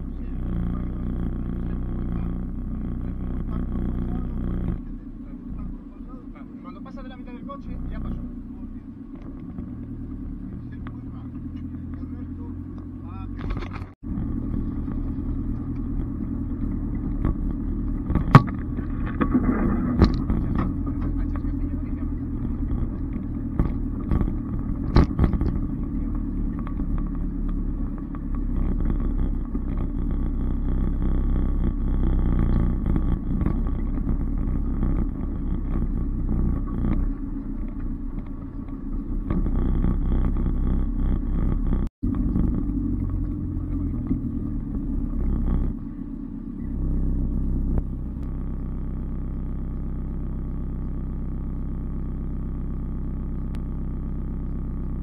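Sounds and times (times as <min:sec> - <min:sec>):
low engine rumble: 0:00.0 - 0:55.0
knocks and rattles: 0:13.3 - 0:45.9.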